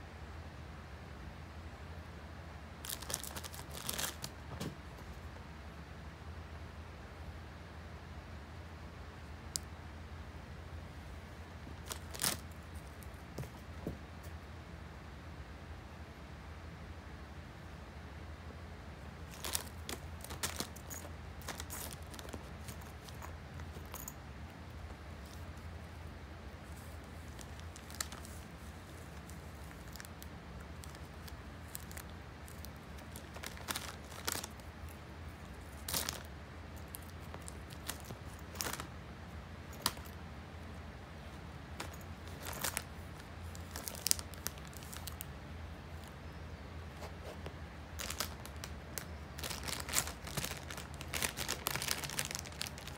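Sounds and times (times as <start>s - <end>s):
steady low hum: 0.0s - 52.9s
plastic bag crinkling: 2.8s - 4.4s, 11.8s - 13.2s, 19.2s - 24.2s, 26.6s - 39.0s, 39.6s - 45.3s, 47.0s - 52.9s.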